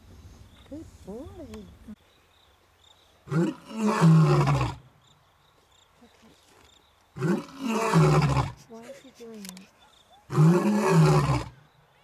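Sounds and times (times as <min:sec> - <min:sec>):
lion roaring: 0:10.3 - 0:11.6.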